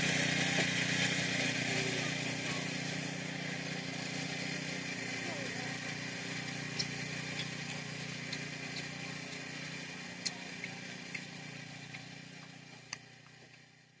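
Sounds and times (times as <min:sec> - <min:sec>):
small engine running: 0:00.0 - 0:14.0
sharp ticks: 0:03.6 - 0:13.6.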